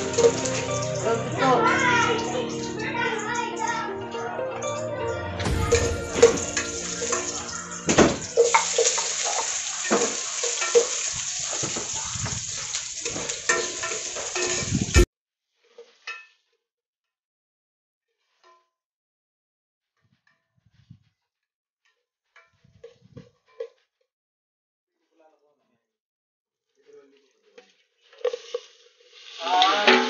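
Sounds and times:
steady hiss: 5.5 - 15.0, 28.2 - 30.0
metal ladle clinking against pot: 13.4 - 14.6.

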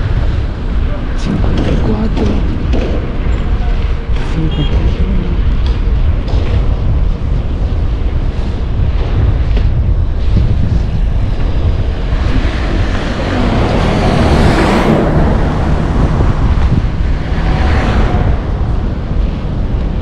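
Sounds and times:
wind buffeting microphone: 0.0 - 20.0
passing vehicle whooshing: 5.3 - 20.0.

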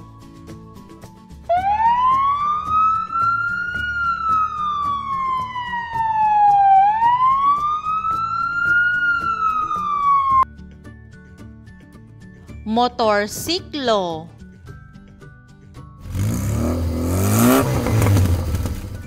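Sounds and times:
fire truck siren wailing: 1.5 - 10.5.

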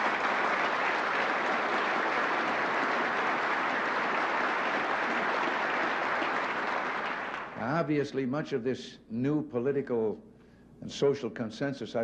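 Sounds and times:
large audience applauding: 0.0 - 7.6.

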